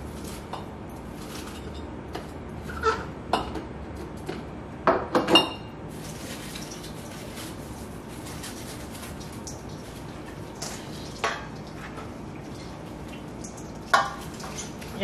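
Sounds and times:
green beans rustling: 0:05.9 - 0:11.0.

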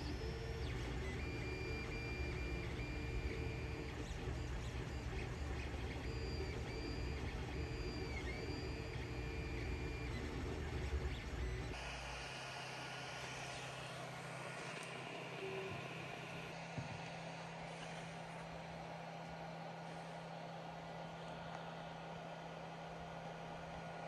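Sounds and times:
stepper motors whining: 0:00.0 - 0:16.6.

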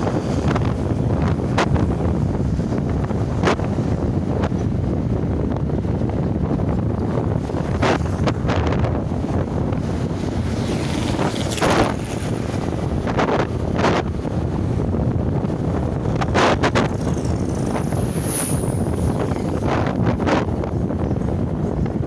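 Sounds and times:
wind rushing over microphone: 0:00.0 - 0:22.0
motorcycle engine running: 0:15.2 - 0:20.0.

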